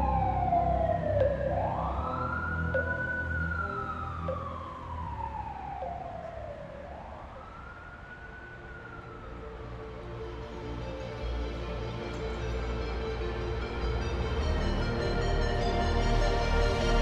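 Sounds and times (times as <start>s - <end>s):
siren wailing: 0.0s - 10.3s.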